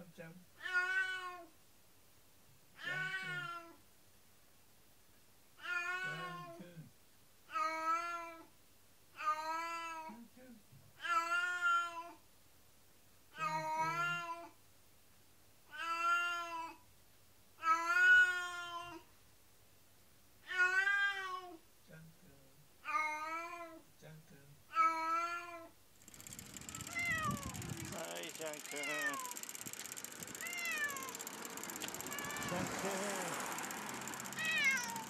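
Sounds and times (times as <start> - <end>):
cat meowing: 0.6 - 1.5, 2.8 - 3.8, 5.6 - 6.5, 11.0 - 12.2, 15.7 - 16.8, 17.6 - 19.0, 20.4 - 21.6, 22.9 - 23.8, 24.7 - 25.7, 28.7 - 29.4, 30.4 - 31.1, 34.4 - 35.0.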